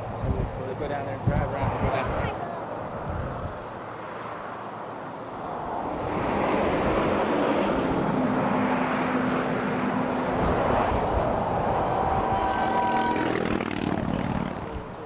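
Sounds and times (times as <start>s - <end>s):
loud rushing noise: 5.6s - 14.9s
engine running: 12.2s - 15.0s.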